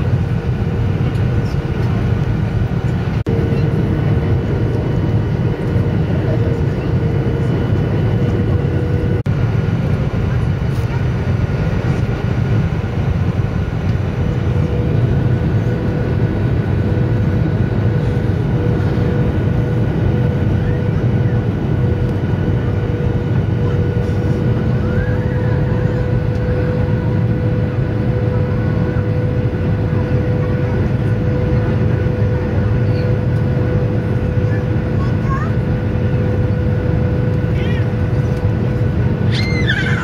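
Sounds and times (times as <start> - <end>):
jet engines rumbling: 0.0 - 40.0.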